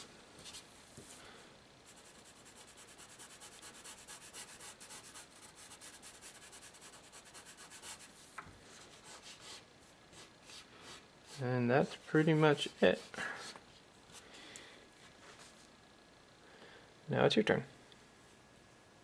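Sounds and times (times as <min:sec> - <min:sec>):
charcoal pencil scratching on paper: 0:01.9 - 0:08.2, 0:08.8 - 0:13.6.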